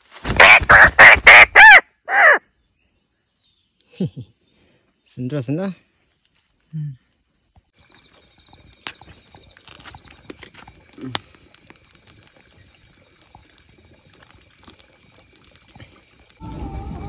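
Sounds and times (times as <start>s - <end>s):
campfire crackling: 7.8s - 17.0s.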